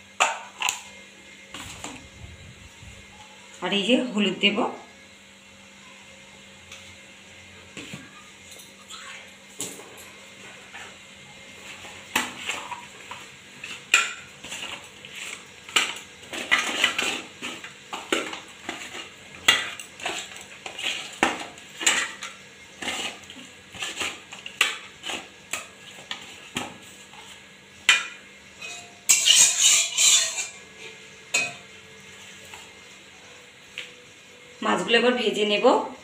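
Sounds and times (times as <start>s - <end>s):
fish against a steel plate: 27.9s - 30.6s.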